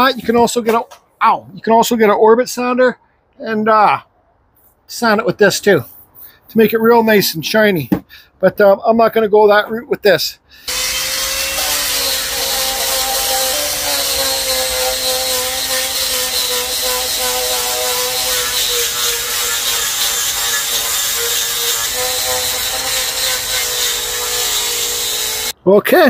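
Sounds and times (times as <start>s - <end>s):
sander hissing on wood: 10.6s - 25.6s.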